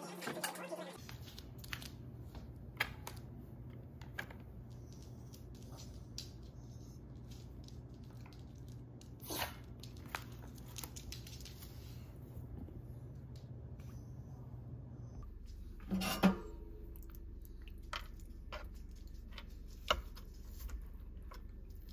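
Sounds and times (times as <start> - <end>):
low steady hum: 1.0 - 21.9.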